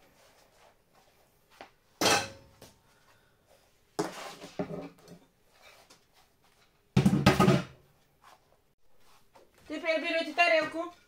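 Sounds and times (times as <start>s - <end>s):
kitchenware clattering: 2.0s - 2.5s.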